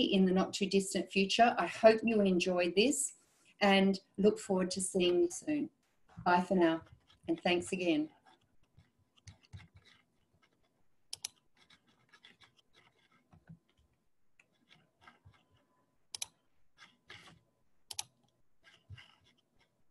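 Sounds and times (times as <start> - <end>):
keyboard and mouse clicking: 8.2 - 19.7.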